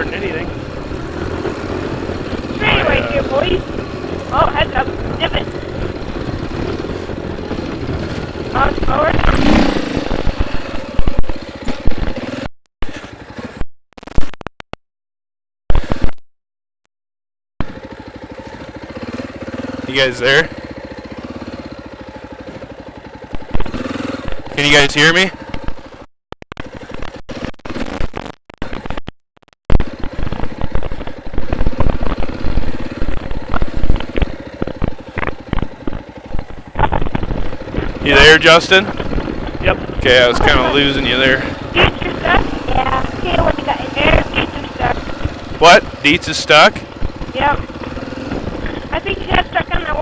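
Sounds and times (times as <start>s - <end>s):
dirt bike engine running: 0.0s - 13.6s, 15.7s - 16.2s, 17.6s - 29.1s, 29.7s - 50.0s
bike knocking and clattering: 8.9s - 13.0s, 20.6s - 24.6s, 29.8s - 38.0s.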